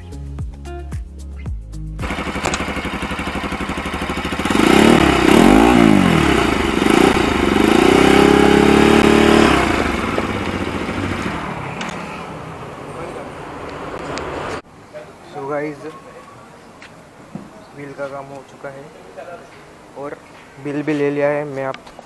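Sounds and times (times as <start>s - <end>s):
motorcycle engine revving: 2.0s - 14.6s.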